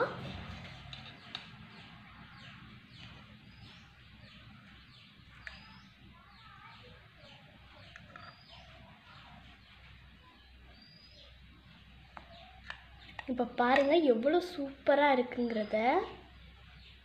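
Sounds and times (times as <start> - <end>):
faint bird chirps: 1.1 - 14.1.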